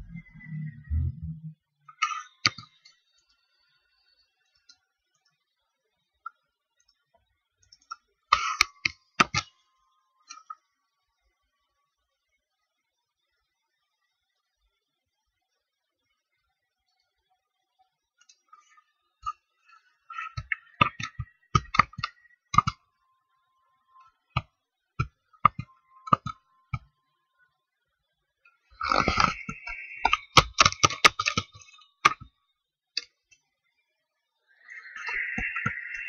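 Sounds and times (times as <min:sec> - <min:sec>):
mouse and keyboard clicks: 0:07.6 - 0:09.5, 0:20.1 - 0:22.8, 0:24.4 - 0:26.9, 0:28.8 - 0:32.3, 0:34.9 - 0:36.0.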